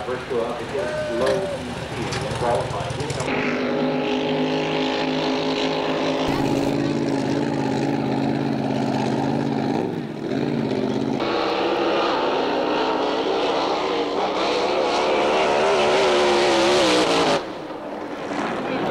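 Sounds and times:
racing boat engine running: 3.4s - 11.1s.

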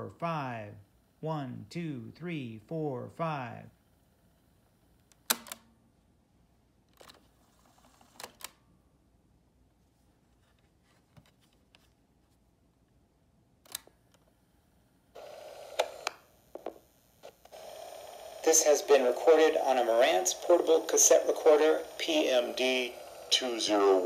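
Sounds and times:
faint tape hiss: 0.0s - 24.0s
cassette recorder mechanism clicks: 5.1s - 5.6s.

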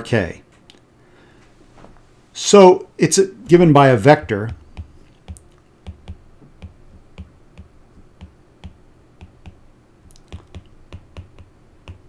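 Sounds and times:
stylus tapping on a screen: 4.4s - 12.0s.

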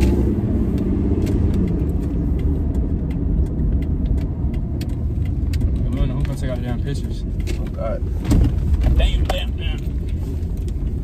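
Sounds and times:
car engine and road rumble: 0.0s - 11.0s.

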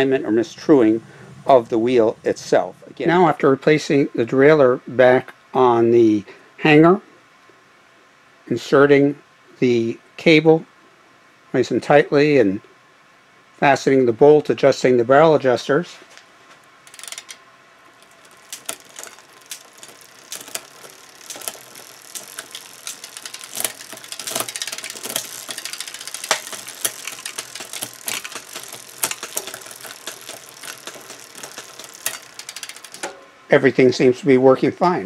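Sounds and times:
bicycle chain ticking over cassette: 16.8s - 33.2s
derailleur shifting clacks: 16.8s - 33.3s.

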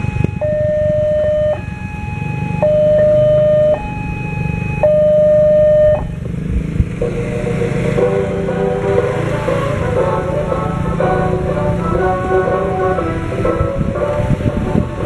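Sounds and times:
level-crossing alarm two-tone: 0.0s - 6.2s.

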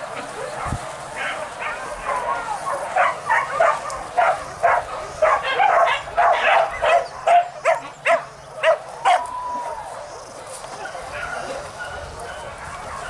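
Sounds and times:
dogs yelping: 1.2s - 9.3s.

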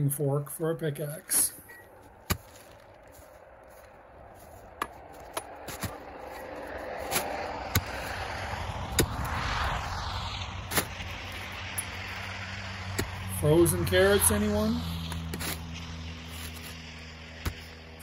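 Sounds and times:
pickaxe striking frozen soil: 2.2s - 3.8s, 4.4s - 9.4s, 10.7s - 13.3s, 15.0s - 18.0s
rushing noise: 2.4s - 18.0s.

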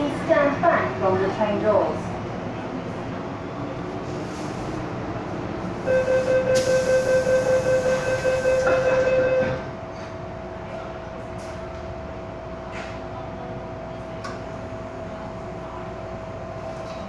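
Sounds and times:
train hum: 0.0s - 17.0s
rapid warning beeps: 5.9s - 9.6s
train doors hissing shut: 6.0s - 9.1s.

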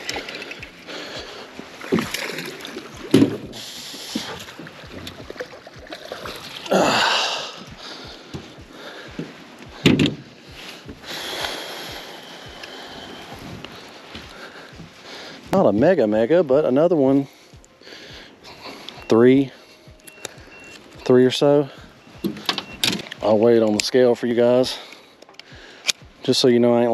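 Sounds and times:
water splashing: 0.0s - 15.8s
knocks and thumps on boat deck: 3.0s - 5.4s, 9.2s - 10.3s.

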